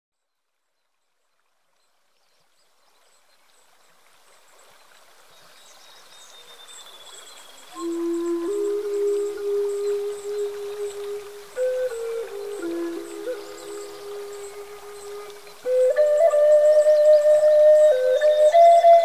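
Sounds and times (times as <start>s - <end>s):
stream water running: 0.2s - 19.0s
calm new-age music: 7.3s - 19.0s.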